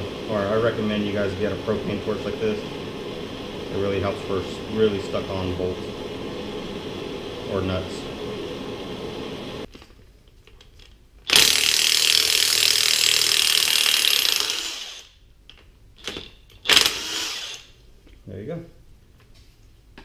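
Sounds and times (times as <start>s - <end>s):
propane torch hissing: 0.0s - 9.7s.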